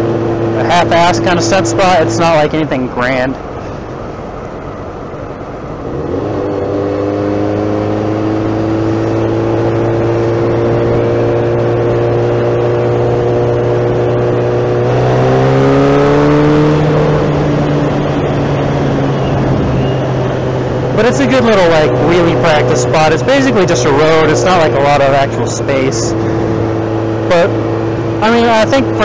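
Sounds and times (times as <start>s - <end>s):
wind and road noise: 0.0s - 29.0s.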